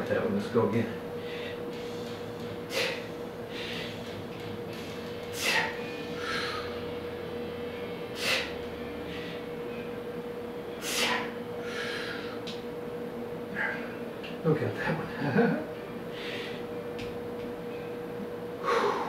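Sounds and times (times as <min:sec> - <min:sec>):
faint steady hum: 0:00.0 - 0:19.0
man breathing hard: 0:01.2 - 0:01.7, 0:02.6 - 0:04.2, 0:05.3 - 0:06.9, 0:08.1 - 0:09.7, 0:10.8 - 0:12.5, 0:16.1 - 0:16.7, 0:18.6 - 0:19.0.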